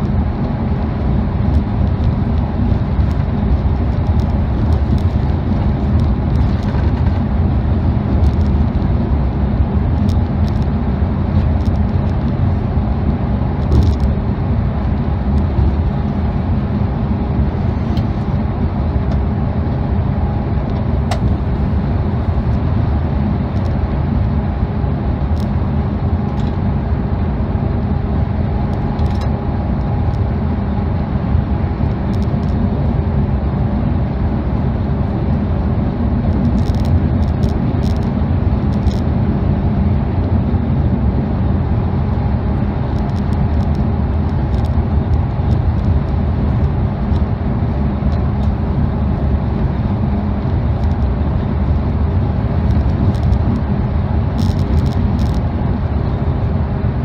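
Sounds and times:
coach engine and tyre rumble: 0.0s - 57.0s.

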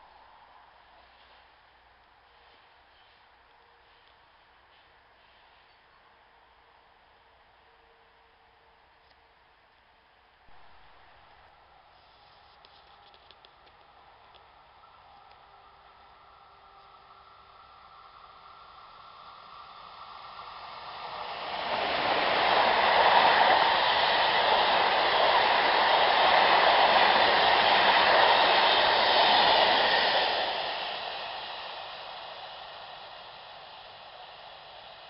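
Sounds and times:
freight train wheels on rails: 12.6s - 35.0s.

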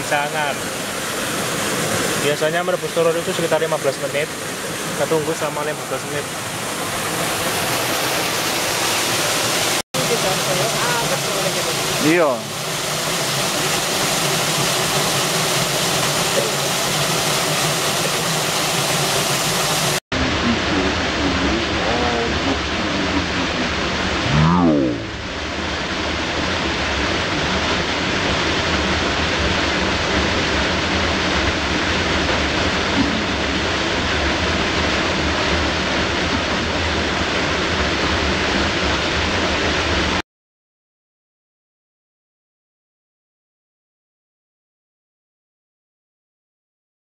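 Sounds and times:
waterfall pouring into pool: 0.0s - 20.0s, 25.4s - 40.2s.

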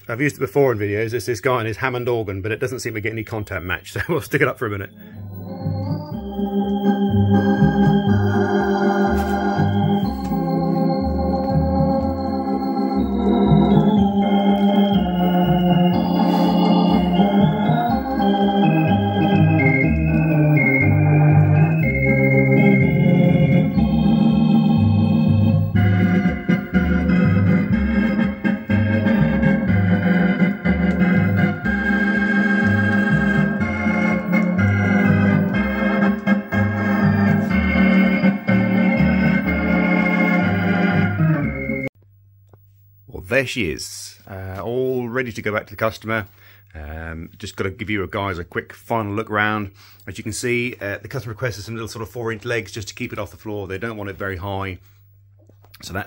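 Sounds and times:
organ music from loudspeakers: 0.0s - 42.0s.

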